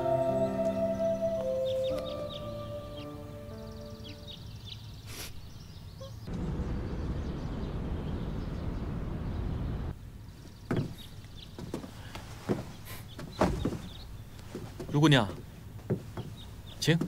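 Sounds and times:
low wash of town noise: 0.0s - 13.4s.

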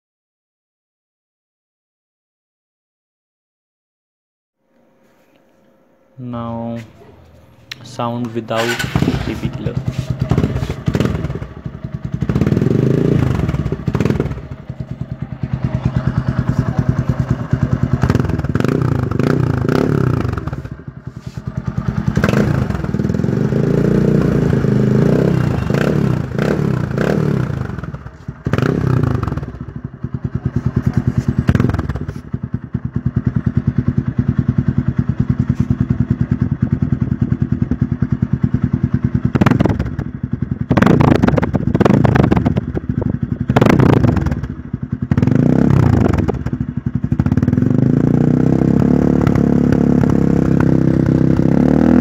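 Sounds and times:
motorcycle engine idling and revving: 6.3s - 52.0s.

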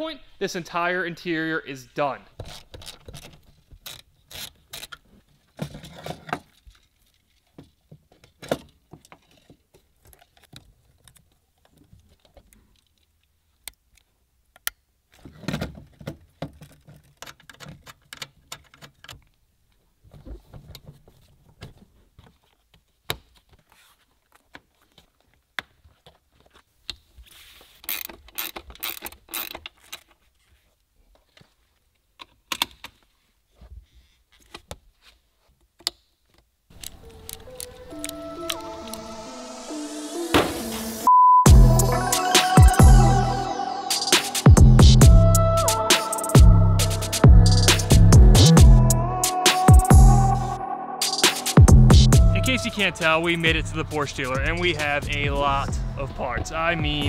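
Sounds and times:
ratchet wrench on bolts: 27.9s - 29.6s.

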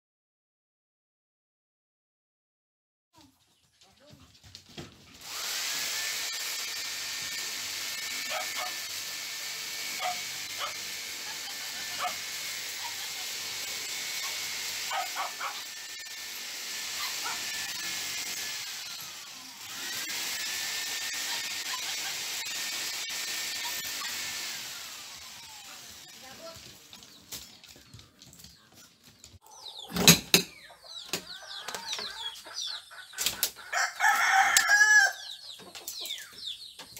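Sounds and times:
power drill running: 5.2s - 26.6s.

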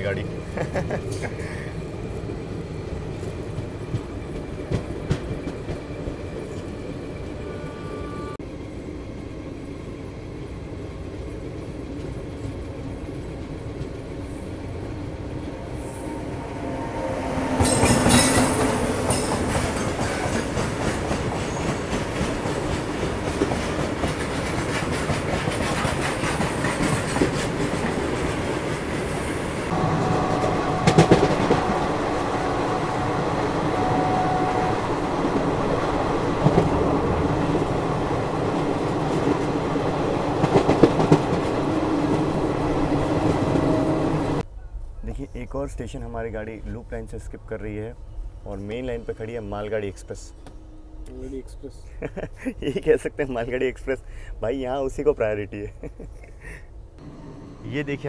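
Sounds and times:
freight train passing: 0.0s - 44.5s, 46.1s - 55.7s, 56.7s - 58.0s
train wheels clattering on rails: 3.1s - 6.8s, 17.5s - 32.7s, 35.2s - 44.4s.

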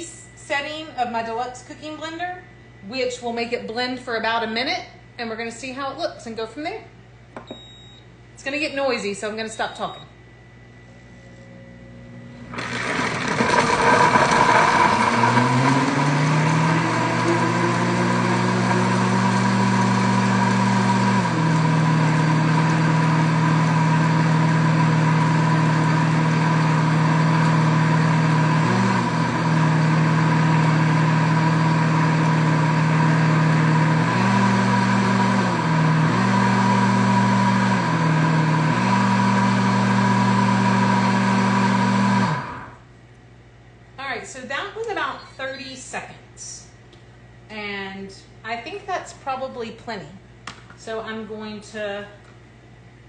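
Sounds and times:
blender crushing ice: 12.5s - 42.8s.

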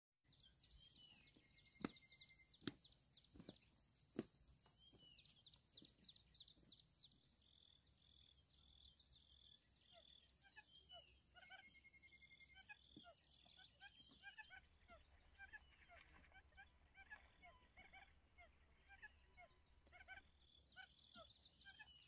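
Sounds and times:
insect drone: 0.3s - 13.9s
bird chirps: 0.3s - 22.0s
footsteps snapping through brush: 1.7s - 5.4s.

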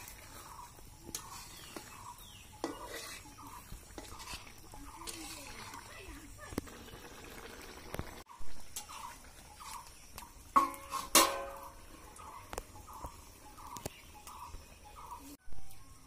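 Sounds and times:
small bird chirping: 0.0s - 10.5s, 11.7s - 16.0s
steel plate clanking on iron pan: 10.5s - 11.8s.

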